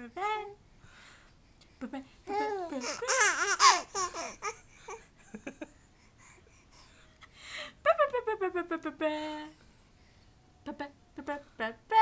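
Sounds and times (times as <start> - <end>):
baby laughing: 2.8 - 5.0.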